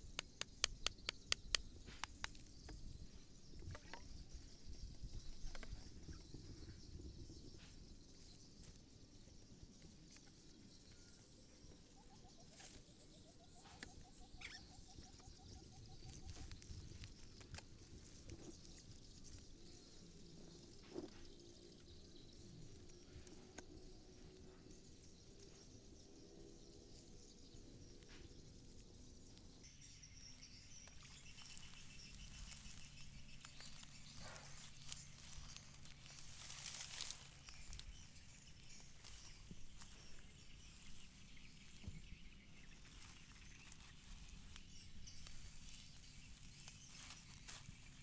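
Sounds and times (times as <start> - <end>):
rustling and clicks of hands tying string: 0.0 - 26.5
small ticks: 0.0 - 27.3
soft rustle: 30.9 - 48.0.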